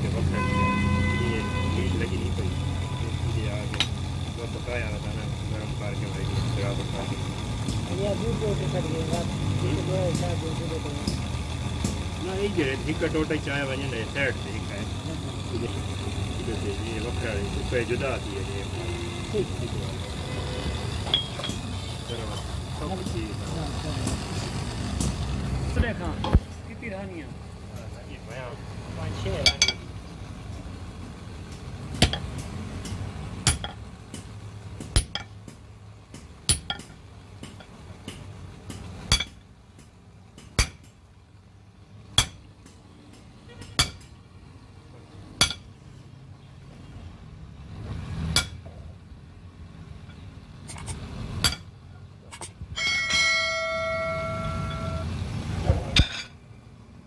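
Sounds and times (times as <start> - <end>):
metal ringing tone: 10.7 - 23.2, 29.4 - 29.9, 52.7 - 55.3
sledgehammer clanging on metal: 32.0 - 33.8, 36.5 - 37.7, 39.1 - 39.4, 45.4 - 45.7, 52.3 - 55.1, 55.7 - 56.4.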